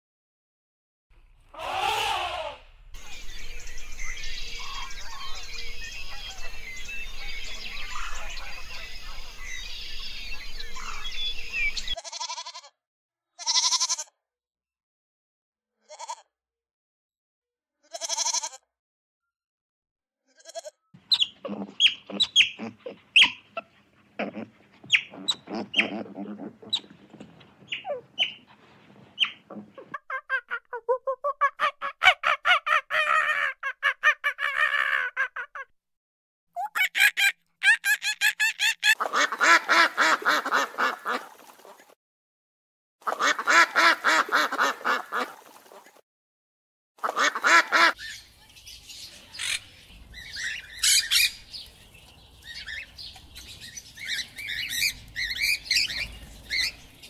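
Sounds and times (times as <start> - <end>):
chirping ambience: 1.2 - 12.0, 21.0 - 30.0, 47.1 - 57.0
goat bleating: 1.5 - 2.6, 12.0 - 12.7, 13.4 - 14.1, 15.9 - 16.3, 17.9 - 18.6, 20.3 - 28.0
rapid high calls: 1.5 - 2.6, 21.0 - 28.6.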